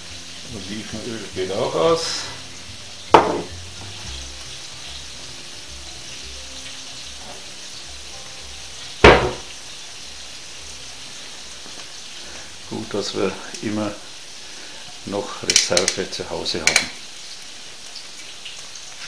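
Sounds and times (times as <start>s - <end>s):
food sizzling in a pan: 0.0s - 19.0s
loud sharp knocks: 9.0s - 9.5s.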